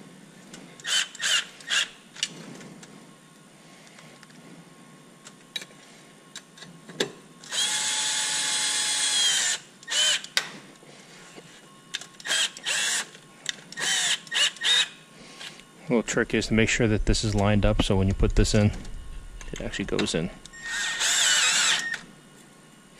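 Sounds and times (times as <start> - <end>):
power driver motor whine: 7.4 - 10.4, 11.4 - 22.2
power driver trigger bursts: 18.5 - 22.0.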